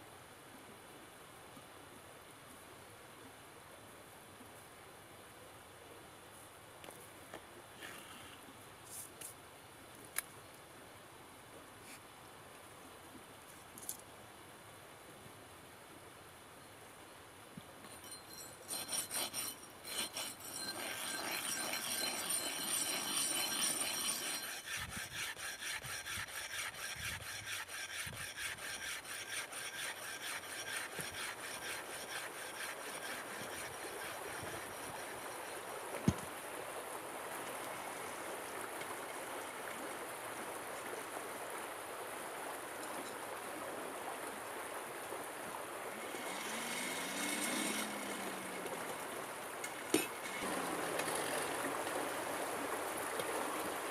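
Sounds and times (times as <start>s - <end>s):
metal scraping on stone: 17.8s - 36.2s, 46.0s - 48.3s, 49.6s - 51.6s
stream running: 17.8s - 53.9s.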